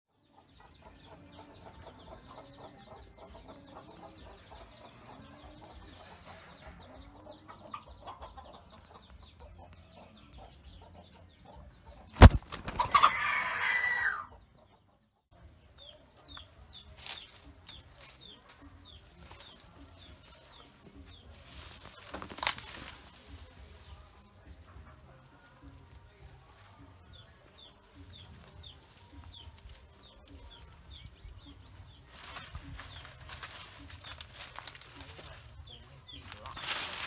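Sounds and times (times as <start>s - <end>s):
chickens clucking softly: 0.2s - 22.1s
rooster crowing: 13.0s - 14.3s.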